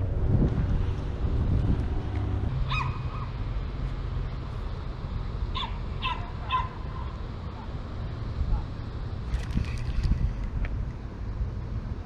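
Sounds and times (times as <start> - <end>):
wind rumble on microphone: 0.0 - 3.7, 8.1 - 12.0
high-pitched animal calls: 2.6 - 3.3.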